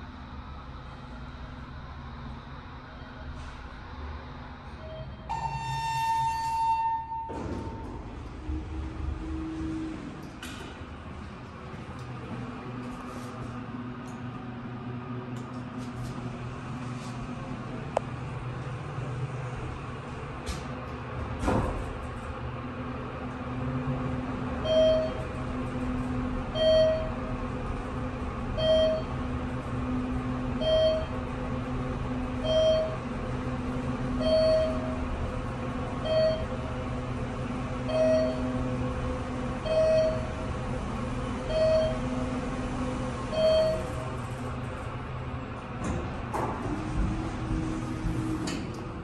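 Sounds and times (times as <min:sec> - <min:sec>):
elevator hum: 0:00.0 - 0:49.0
short beeps: 0:04.8 - 0:07.8.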